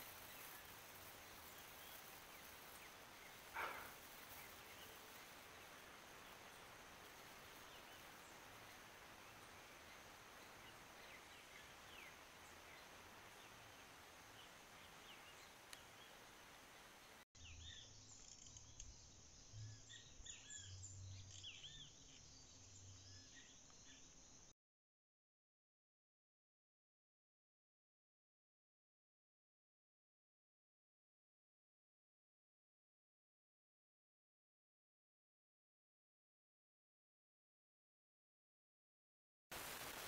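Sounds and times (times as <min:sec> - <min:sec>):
birds chirping: 0:00.0 - 0:24.4
steady hiss: 0:00.0 - 0:24.5, 0:39.5 - 0:40.0
thin high insect-like tone: 0:17.6 - 0:24.5.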